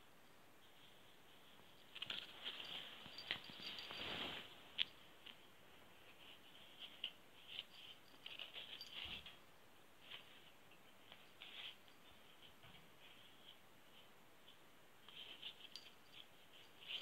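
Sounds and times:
scratchy rustles and light taps: 0.6 - 17.0.

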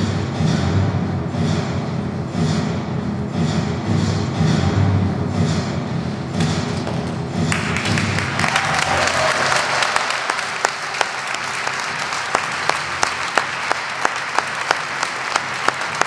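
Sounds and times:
rhythmic clapping in unison: 6.3 - 16.0
audience applause: 7.5 - 16.0.

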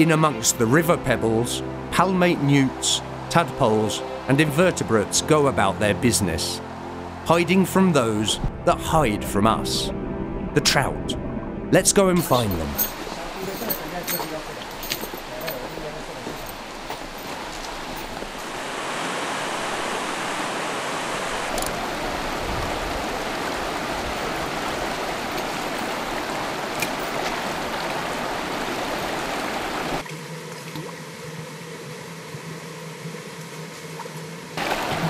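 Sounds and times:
river rushing over stones: 12.2 - 30.3, 34.4 - 35.0.

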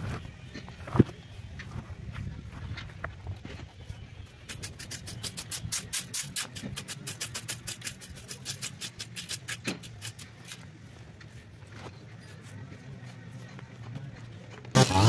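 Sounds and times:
rake scratching over grass: 4.4 - 11.5, 14.7 - 15.0.

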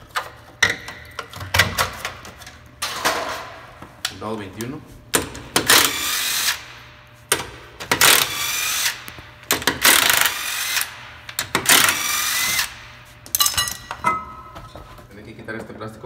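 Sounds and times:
impact wrench whirring: 5.2 - 13.4.

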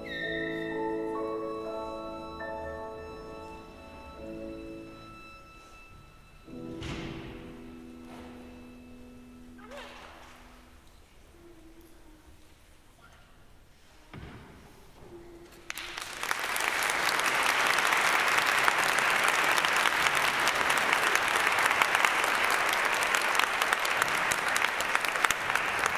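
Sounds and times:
audience applauding: 15.7 - 25.9.

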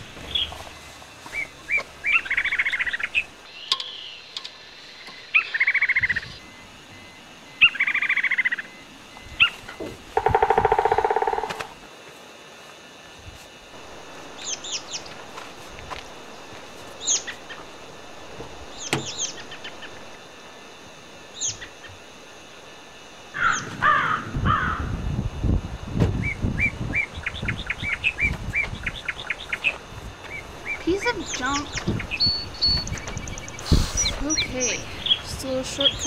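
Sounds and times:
low rustling and scuffing: 0.0 - 2.0, 15.0 - 17.7
birds chirping: 0.0 - 11.5, 14.3 - 15.4, 16.2 - 18.0, 18.6 - 20.2, 21.3 - 22.1, 26.2 - 36.0.

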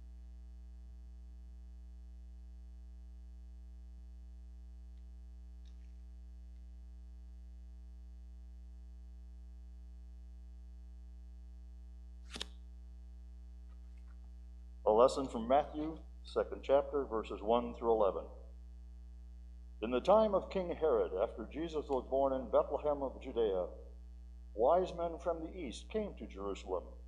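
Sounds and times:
electrical mains hum: 12.7 - 27.0.

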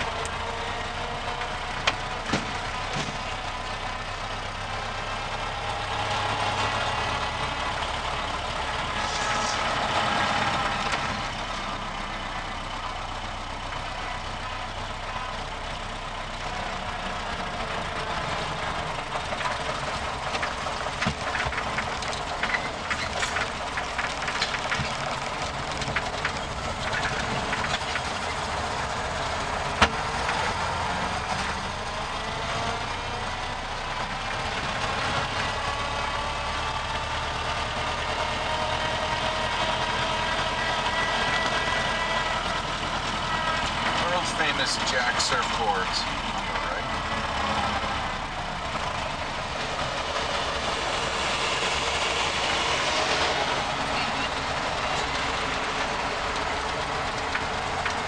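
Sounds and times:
car engine running: 0.0 - 58.0
clicks and rattles: 19.4 - 28.5.

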